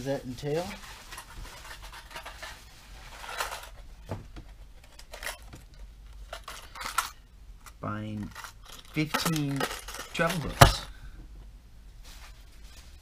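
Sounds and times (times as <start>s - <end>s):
plastic packaging rustling: 0.0s - 7.2s, 8.2s - 10.9s.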